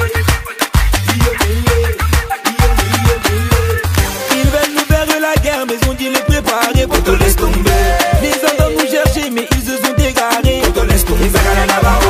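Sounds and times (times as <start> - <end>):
heavy bass line: 0.0 - 5.6, 6.8 - 8.3, 10.5 - 12.0
dance music: 0.0 - 12.0
fast drum beat: 0.0 - 12.0.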